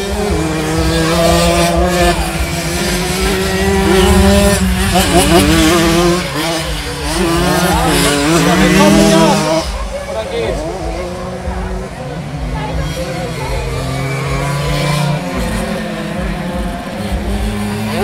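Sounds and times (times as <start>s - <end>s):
engine throttle blips: 0.0s - 10.0s
mopeds revving hard: 0.0s - 18.0s.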